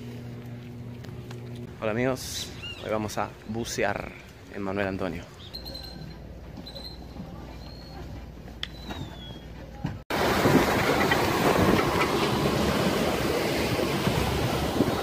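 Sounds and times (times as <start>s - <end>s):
boat motor: 10.1s - 15.0s
water rushing: 10.1s - 15.0s
wind noise: 10.1s - 15.0s.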